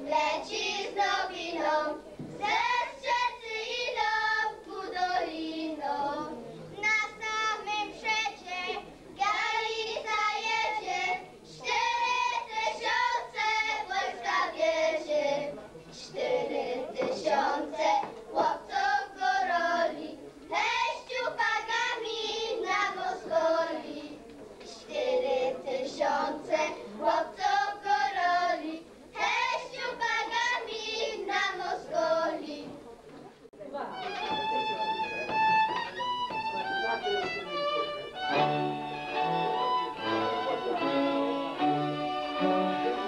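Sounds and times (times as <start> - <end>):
girls singing folk song: 0.0 - 32.8.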